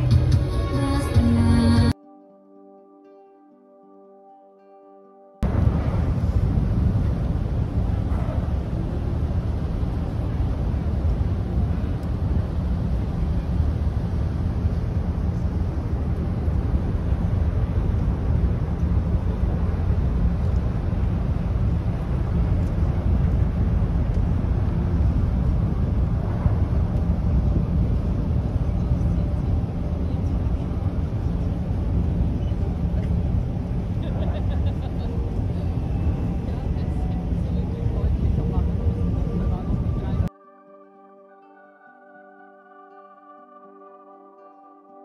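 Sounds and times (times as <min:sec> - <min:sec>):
wind: 0:00.0 - 0:02.1, 0:05.4 - 0:45.0
ship engine rumble: 0:05.4 - 0:40.3.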